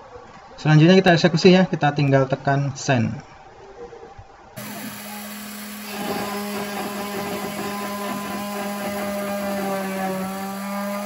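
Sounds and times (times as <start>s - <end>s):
router spindle motor humming: 4.6s - 11.0s
stepper motors whining: 4.6s - 11.0s.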